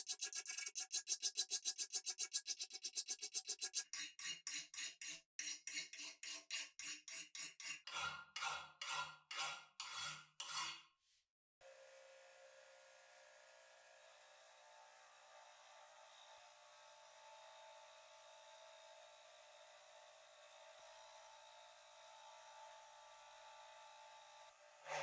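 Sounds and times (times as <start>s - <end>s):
hand file rasping on metal: 0.0s - 10.9s.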